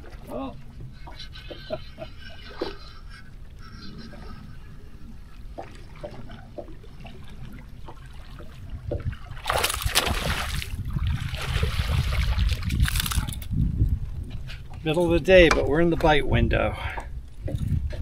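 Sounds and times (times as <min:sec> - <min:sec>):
loud water splashing: 0:09.3 - 0:13.2.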